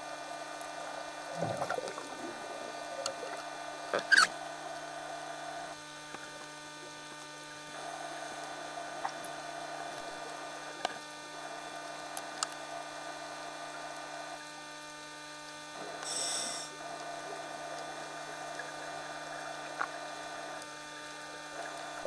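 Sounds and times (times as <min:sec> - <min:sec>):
camcorder steady hum: 0:00.0 - 0:22.0
faint ticks: 0:03.0 - 0:04.3, 0:11.8 - 0:12.9, 0:18.6 - 0:21.8.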